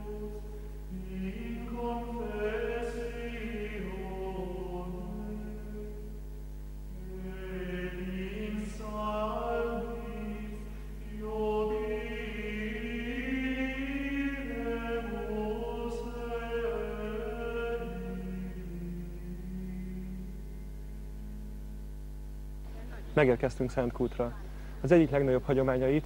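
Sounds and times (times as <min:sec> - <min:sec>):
chant-like singing: 0:00.0 - 0:06.1, 0:06.9 - 0:21.6
steady low hum: 0:00.0 - 0:26.0.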